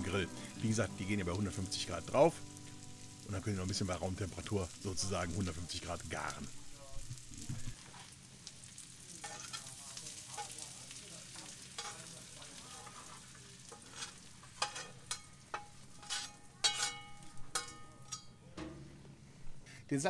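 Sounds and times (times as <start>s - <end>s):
sizzling hiss: 0.0s - 18.2s
metal spatula scraping iron pan: 9.2s - 9.7s, 11.8s - 18.8s
metallic scrapes and clinks: 13.7s - 18.5s.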